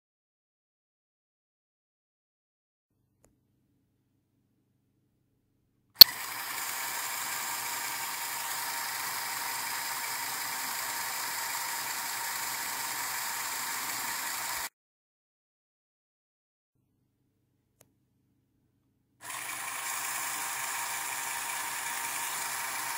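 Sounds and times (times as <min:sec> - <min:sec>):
motor and plastic chain whirring: 0:06.0 - 0:14.7, 0:19.2 - 0:22.9.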